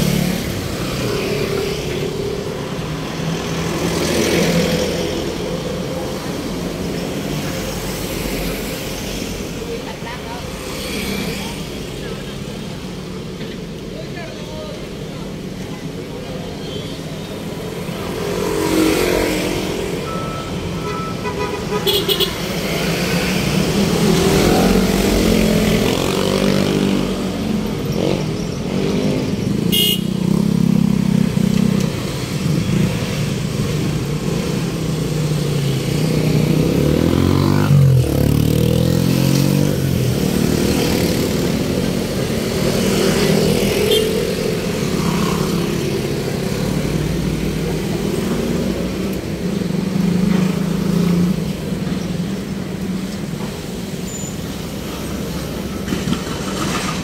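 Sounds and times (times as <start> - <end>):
vehicle engines running: 21.7 - 57.0.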